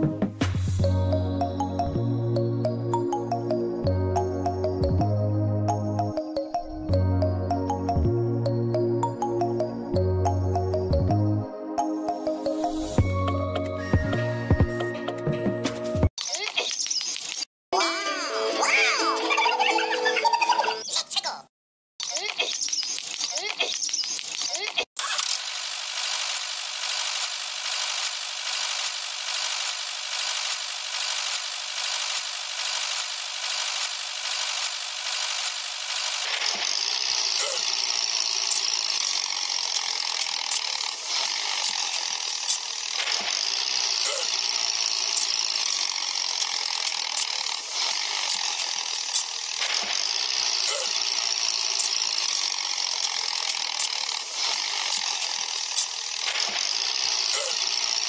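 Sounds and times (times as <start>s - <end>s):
small motor ratcheting whir: 22.0s - 58.0s.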